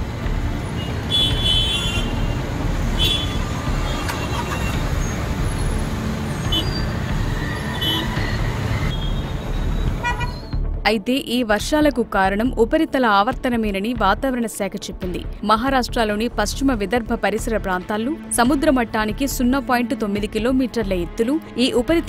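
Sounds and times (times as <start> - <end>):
road traffic rumble: 0.0 - 10.6
car horn toots: 0.8 - 2.4, 3.0 - 4.8, 7.6 - 8.3, 8.9 - 10.4.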